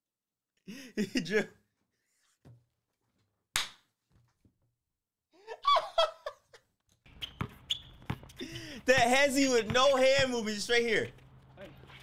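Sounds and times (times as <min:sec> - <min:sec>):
man laughing hard: 0:00.7 - 0:01.6, 0:05.4 - 0:06.6.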